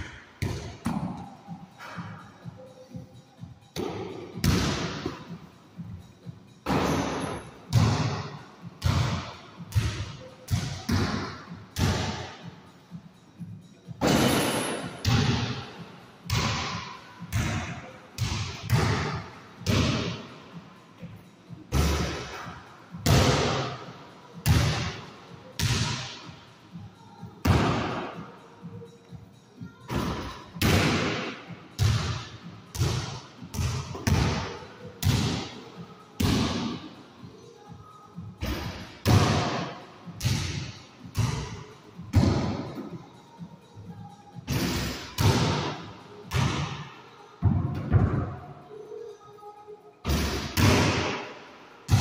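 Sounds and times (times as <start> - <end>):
basketball thudding with echo: 6.6 - 12.3, 29.9 - 35.6, 36.2 - 36.8.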